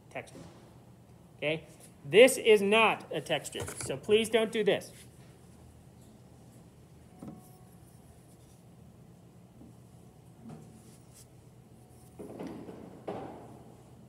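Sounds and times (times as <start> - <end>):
low steady hum: 0.0 - 14.0
stick scratching soft clay: 7.2 - 8.8.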